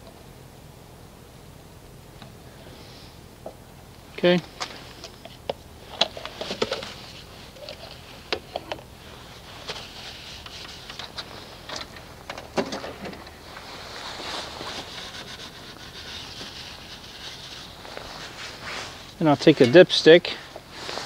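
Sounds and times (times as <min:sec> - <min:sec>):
gloved hand rubbing: 0:04.5 - 0:12.2, 0:13.2 - 0:19.6, 0:20.3 - 0:21.0.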